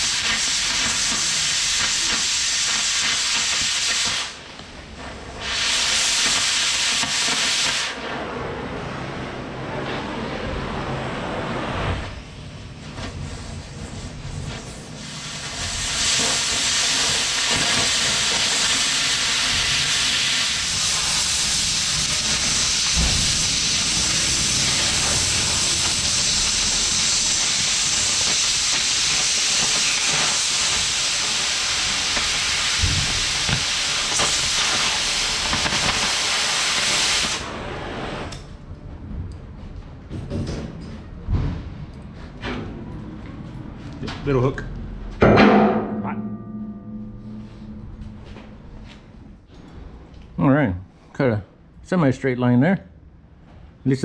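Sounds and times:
cutting torch hissing: 0.0s - 4.5s, 5.1s - 8.4s, 12.8s - 38.5s.

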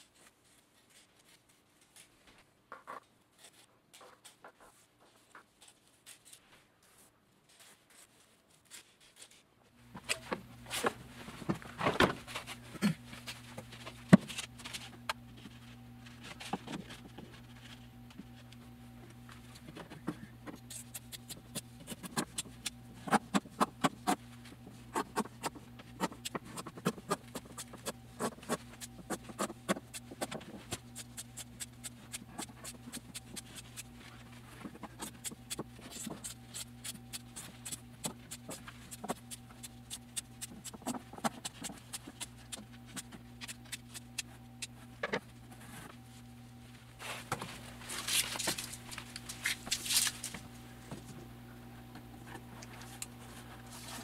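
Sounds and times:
steady low hum: 9.7s - 54.0s.

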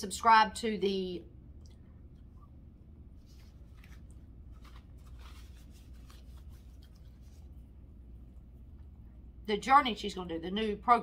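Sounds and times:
soft clicks and rustles: 3.2s - 7.6s.

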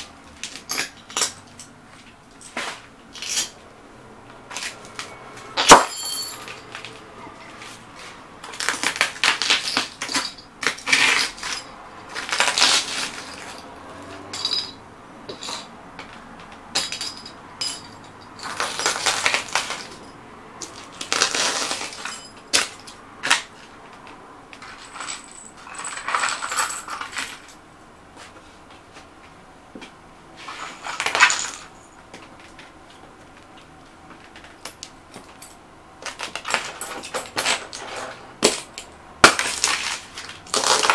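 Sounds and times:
glass crunching under boots: 0.4s - 3.6s, 4.5s - 7.0s, 8.4s - 16.1s, 16.7s - 23.5s, 30.4s - 32.2s, 34.3s - 40.9s
glass tube cracking: 39.3s - 40.9s.

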